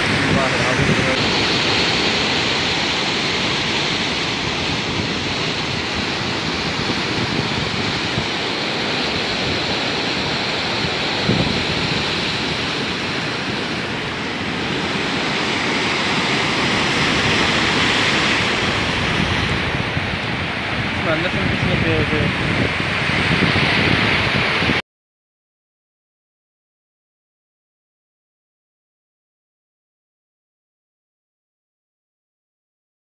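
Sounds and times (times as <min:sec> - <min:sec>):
surf breaking over rocks: 0:00.0 - 0:24.8
wave splash: 0:00.0 - 0:24.8.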